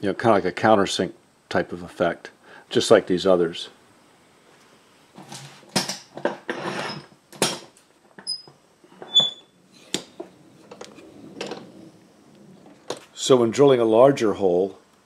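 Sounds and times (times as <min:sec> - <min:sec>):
high squeaks: 0:08.3 - 0:09.9.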